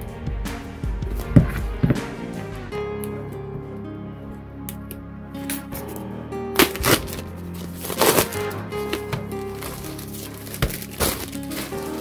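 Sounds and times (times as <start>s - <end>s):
background music held notes: 0.0s - 12.0s
plastic bag crinkling: 6.7s - 12.0s.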